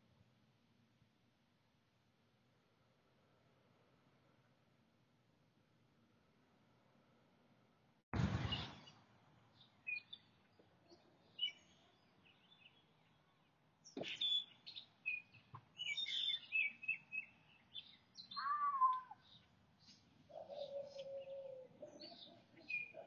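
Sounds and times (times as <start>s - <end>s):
birds chirping: 8.4s - 23.0s.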